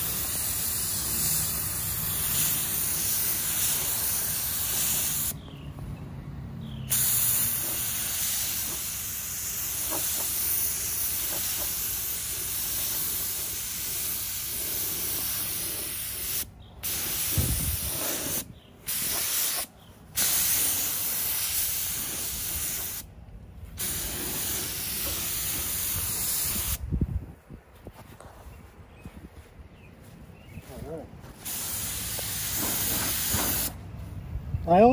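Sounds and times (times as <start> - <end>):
paint spray gun hissing: 0.0 - 5.4, 6.9 - 23.1, 23.8 - 26.8, 31.4 - 33.8.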